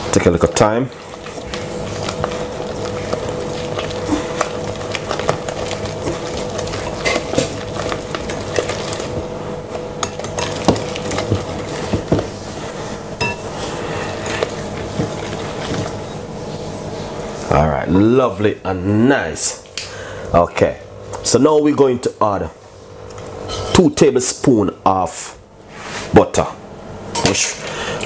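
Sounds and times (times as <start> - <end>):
whisk stirring batter: 0.0 - 9.3, 10.0 - 16.3
whisk wires clinking on glass: 13.2 - 13.5.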